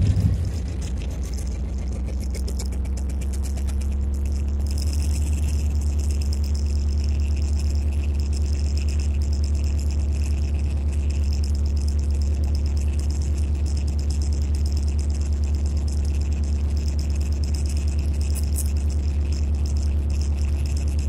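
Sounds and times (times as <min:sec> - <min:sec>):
locomotive engine rumble: 0:00.0 - 0:02.5
steady hum: 0:00.0 - 0:21.0.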